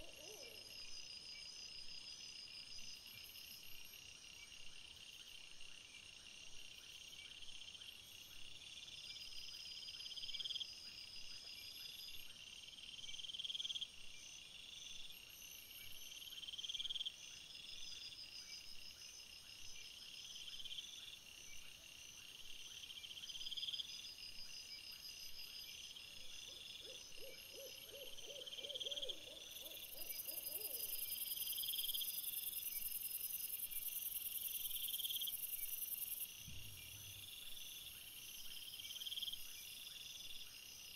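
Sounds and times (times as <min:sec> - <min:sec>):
owl hooting: 0:00.0 - 0:00.7, 0:26.8 - 0:31.0
night insects chirping: 0:00.0 - 0:40.9.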